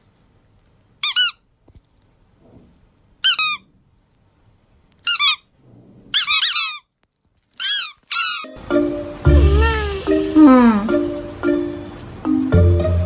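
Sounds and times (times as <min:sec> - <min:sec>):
rubber squeaky toy squeaking: 0:01.0 - 0:01.5, 0:03.2 - 0:03.7, 0:05.0 - 0:05.5, 0:06.1 - 0:07.0, 0:07.6 - 0:08.6, 0:09.4 - 0:10.7.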